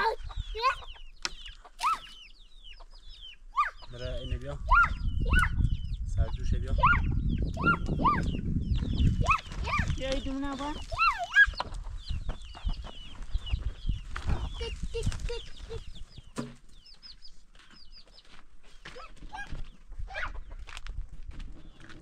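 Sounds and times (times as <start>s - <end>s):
chickens clucking: 0.0s - 22.0s
short high chirping calls: 0.1s - 4.0s.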